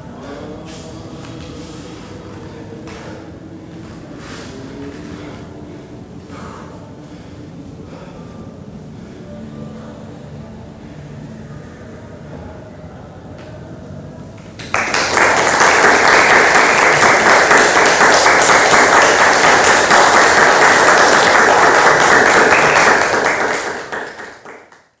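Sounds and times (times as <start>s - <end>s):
audience applause: 14.6s - 25.0s.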